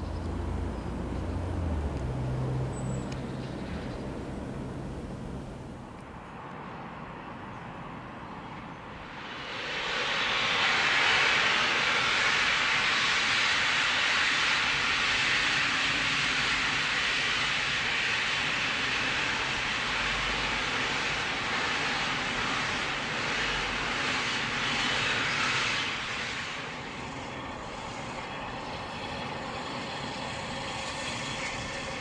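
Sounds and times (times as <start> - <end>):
steam locomotive hissing steam: 9.1 - 27.2.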